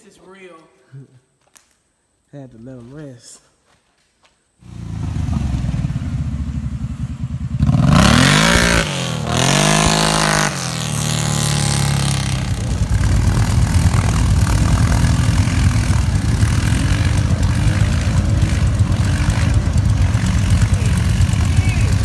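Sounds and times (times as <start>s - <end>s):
atv engine revving: 4.6s - 22.0s
low uneven engine rumble: 11.4s - 22.0s.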